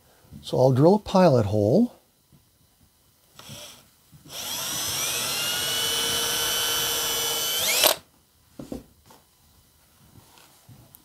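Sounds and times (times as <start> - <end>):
cordless drill motor whine: 3.4 - 8.0
drill click: 3.4 - 8.0.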